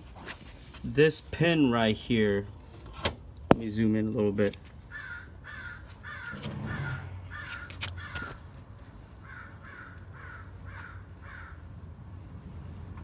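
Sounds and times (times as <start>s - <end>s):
bird calling: 4.9s - 8.4s, 9.2s - 11.6s.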